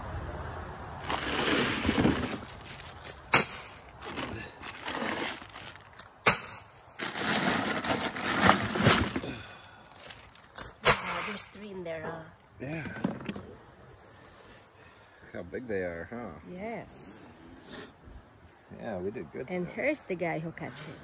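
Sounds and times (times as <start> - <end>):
plastic bags crinkling: 1.0 - 11.4.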